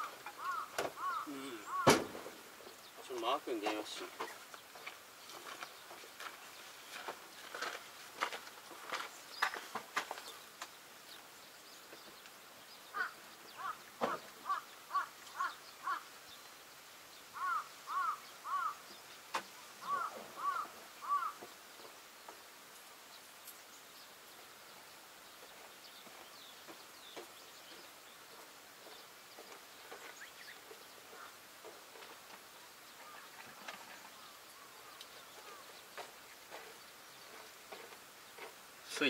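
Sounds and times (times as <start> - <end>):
crow cawing: 0.2 - 2.1, 12.9 - 16.1, 17.4 - 18.8, 19.8 - 21.4
sharp knocks: 1.8 - 2.4.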